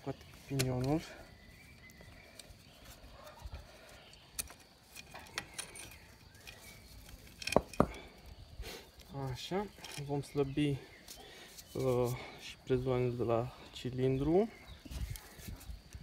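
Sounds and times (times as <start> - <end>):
sharp knocks: 7.5 - 8.0.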